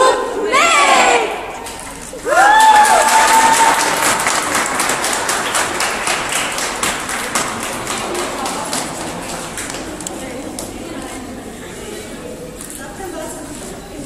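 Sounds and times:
crowd clapping and cheering: 1.6 - 10.7.

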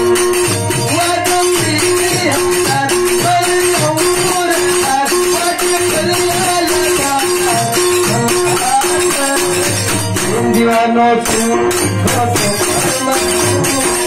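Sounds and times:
fast ticking percussion beat: 0.0 - 14.0
keyboard bending melody: 0.0 - 14.0
steady repeated note: 0.0 - 14.0.

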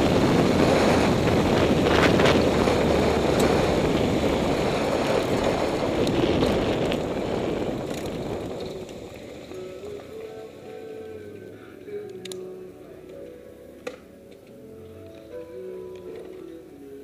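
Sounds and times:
wind on microphone: 0.0 - 9.2
motorcycle engine running: 0.0 - 10.2.

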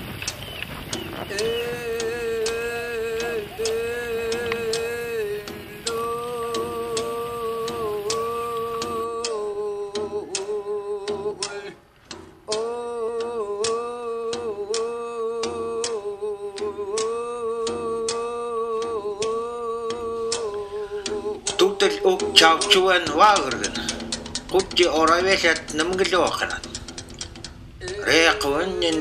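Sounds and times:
ticking beat: 0.0 - 29.0
person humming one note: 1.3 - 11.7.

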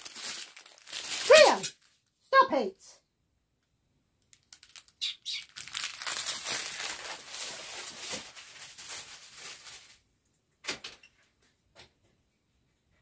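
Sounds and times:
plastic bags crinkling: 0.0 - 2.1, 4.2 - 10.2.

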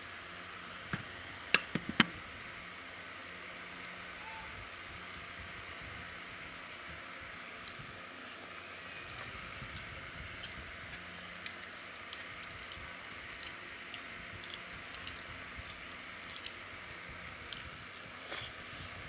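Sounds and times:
chewing: 8.4 - 18.7
rice squishing on steel plates: 9.1 - 18.6.

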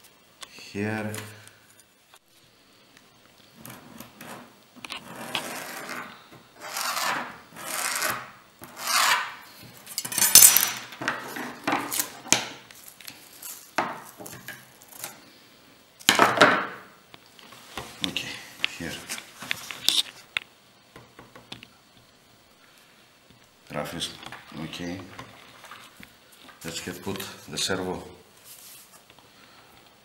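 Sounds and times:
sandpaper scraping strokes: 5.0 - 9.4.

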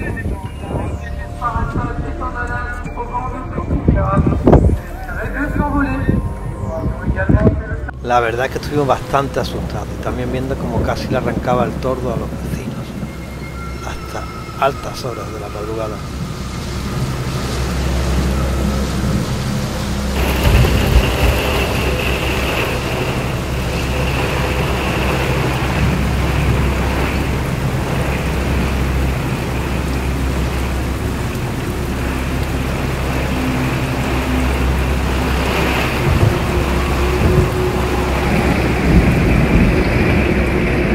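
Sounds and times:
heavy rain pouring: 0.0 - 40.9
low rumble of thunder: 14.9 - 40.9.

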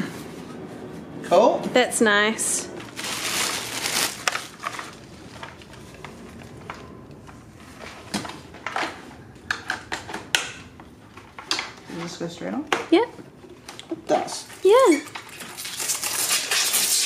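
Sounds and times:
plastic packaging crinkling: 2.8 - 10.2, 14.7 - 17.0.

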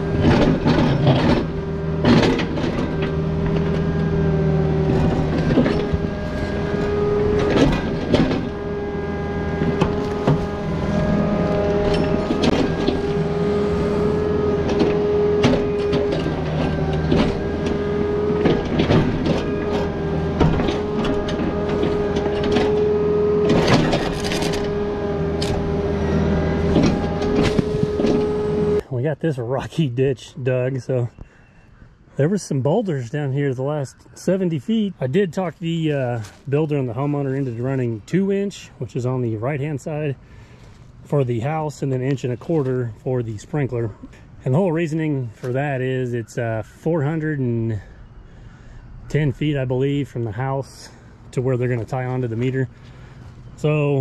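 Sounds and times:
excavator engine and hydraulics whine: 0.0 - 54.0.

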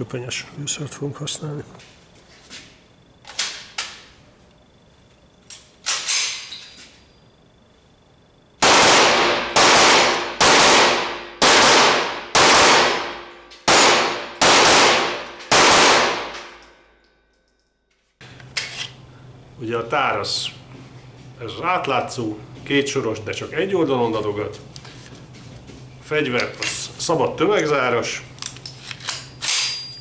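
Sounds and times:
loud gunshots echoing: 8.6 - 16.6.

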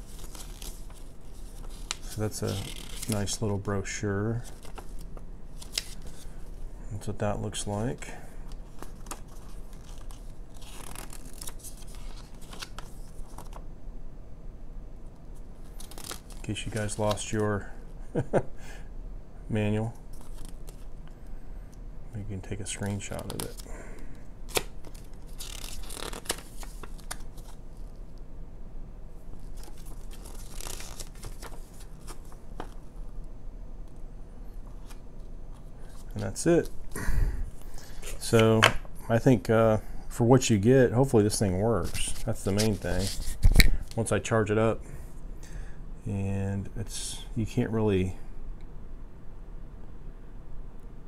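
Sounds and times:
paper leaflet rustling: 0.0 - 6.6, 7.6 - 13.6, 24.5 - 27.9, 29.4 - 32.9, 41.3 - 44.1.

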